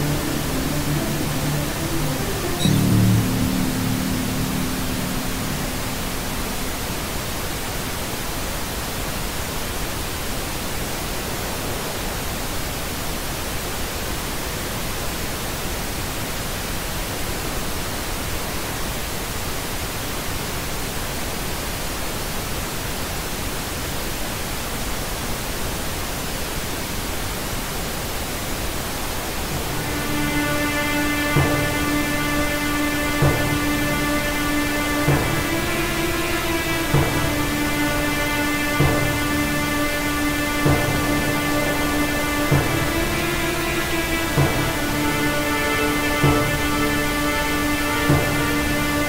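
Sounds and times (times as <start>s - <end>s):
sustained music tones: 0.0s - 8.1s, 29.0s - 49.0s
static hiss: 0.0s - 49.0s.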